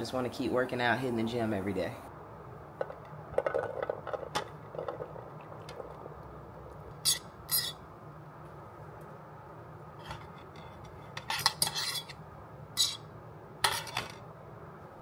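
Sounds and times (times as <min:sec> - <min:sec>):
sharp scraping on cookware: 0:07.0 - 0:07.8, 0:10.0 - 0:12.2, 0:12.8 - 0:13.1
utensils clinking on dishes: 0:10.1 - 0:12.2, 0:13.6 - 0:14.2.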